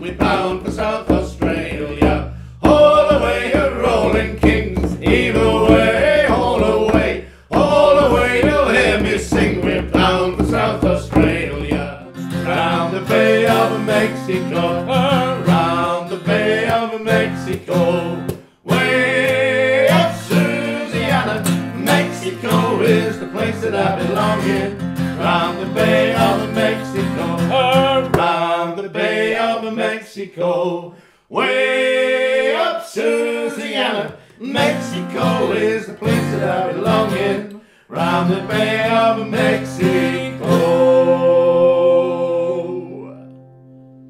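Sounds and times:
frame drums beating: 0:00.0 - 0:12.0
acoustic guitar: 0:00.0 - 0:29.6, 0:31.9 - 0:44.0
men singing in harmony: 0:00.0 - 0:43.2.

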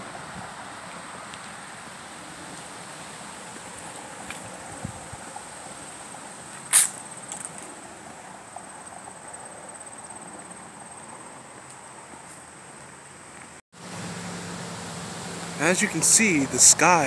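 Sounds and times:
soft outdoor hiss: 0:00.0 - 0:17.0
insects trilling: 0:02.9 - 0:14.0.

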